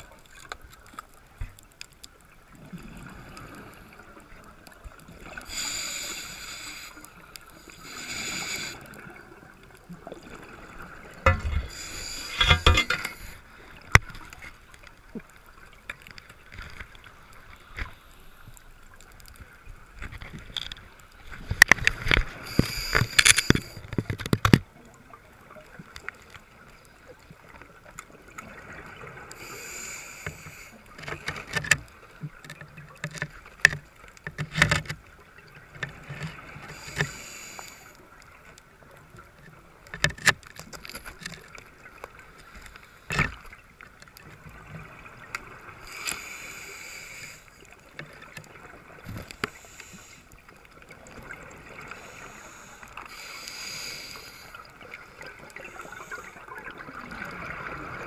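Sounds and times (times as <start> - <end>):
diver breathing through regulator: 5.4 - 8.9, 11.3 - 13.5, 22.3 - 23.9, 29.4 - 30.9, 36.7 - 38.0, 45.8 - 47.6, 49.2 - 50.4, 51.8 - 54.7
sharp clicks and knocks: 12.2 - 13.3.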